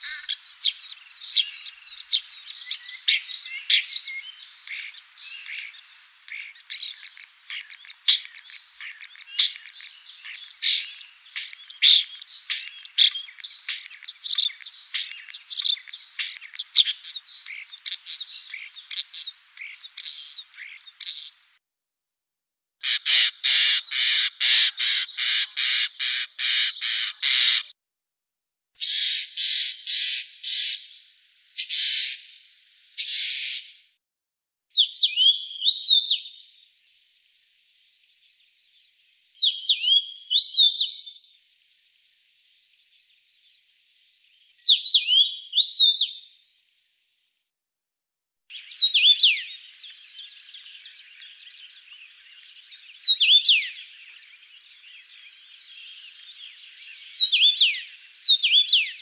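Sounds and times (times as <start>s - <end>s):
starling singing: 0.0s - 21.4s, 48.5s - 59.0s.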